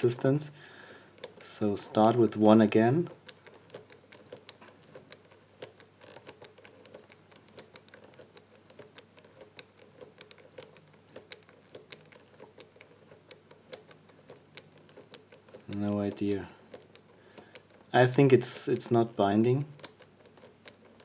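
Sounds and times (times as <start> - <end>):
combination lock wheels clicking: 0.0 - 21.0.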